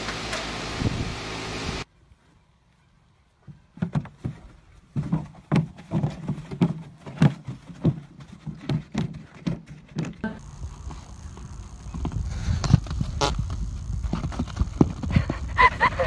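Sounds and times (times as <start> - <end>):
horse hooves thudding on dirt: 3.4 - 16.0.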